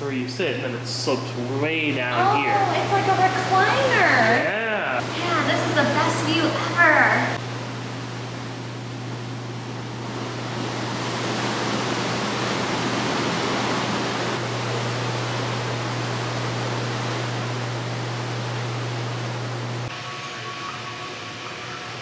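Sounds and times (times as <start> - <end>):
churning water in hot tub: 0.0 - 22.0
steady low hum: 0.0 - 22.0.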